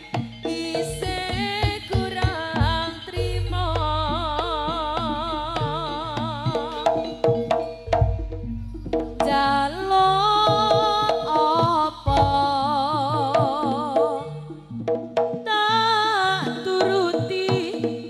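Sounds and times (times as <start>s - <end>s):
sustained melody with vibrato: 0.0s - 16.9s
hand drum strokes: 0.0s - 18.0s
deep bass: 2.6s - 12.8s.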